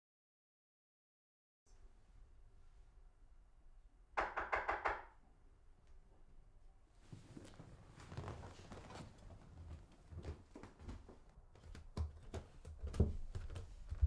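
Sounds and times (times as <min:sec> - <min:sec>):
footsteps walking indoors: 0:07.0 - 0:14.0.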